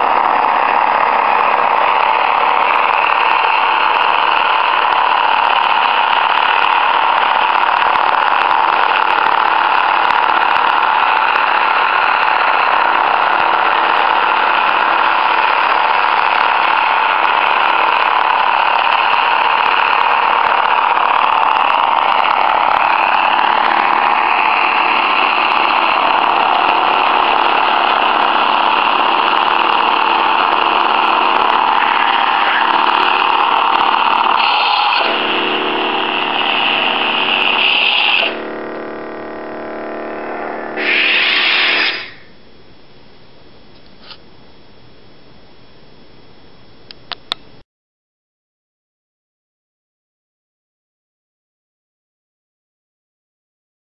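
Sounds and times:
lightsaber hum: 21.0s - 42.3s.

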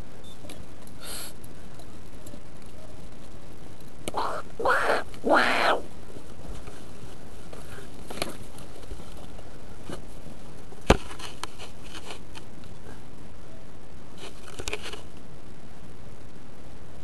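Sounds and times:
steady hiss: 0.0s - 17.0s
faint scrapes and crackles: 6.0s - 13.1s, 14.1s - 15.2s.

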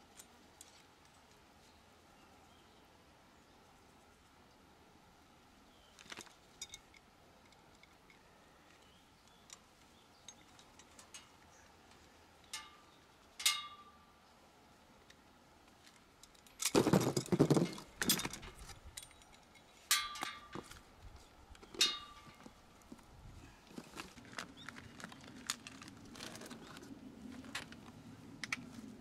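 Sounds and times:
steel parts clinking: 6.1s - 8.2s, 12.4s - 13.9s, 16.2s - 20.8s, 21.7s - 22.5s.

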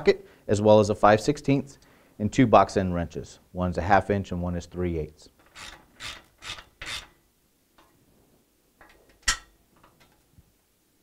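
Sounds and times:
wrench scraping on nut: 5.4s - 7.2s.

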